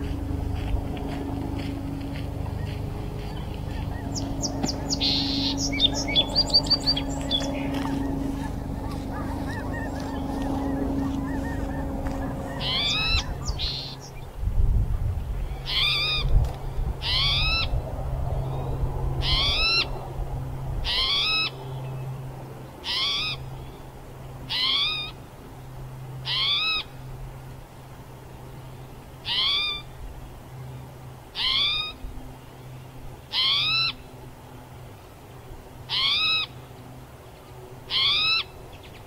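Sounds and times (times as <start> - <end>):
bird giving rising mewing call: 3.2 - 14.2, 29.2 - 29.9, 31.4 - 32.0, 33.3 - 34.0, 35.9 - 36.6, 37.9 - 38.6.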